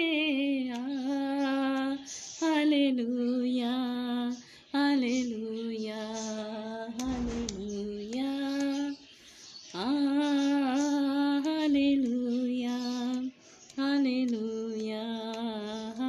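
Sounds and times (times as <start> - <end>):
woman singing unaccompanied: 0.0 - 16.0
knock: 7.1 - 7.8.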